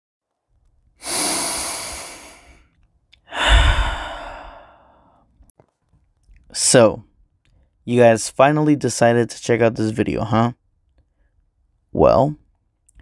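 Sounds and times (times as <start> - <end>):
person sighing heavily: 1.0 - 2.6, 3.2 - 5.2
breath blowing on microphone: 1.0 - 2.7, 3.3 - 5.1.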